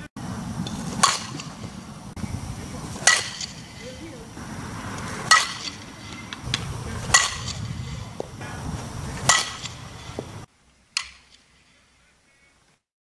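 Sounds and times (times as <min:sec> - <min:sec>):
bat hitting softball ping: 0:00.6 - 0:01.8, 0:02.9 - 0:04.3, 0:05.0 - 0:08.4, 0:09.1 - 0:10.4.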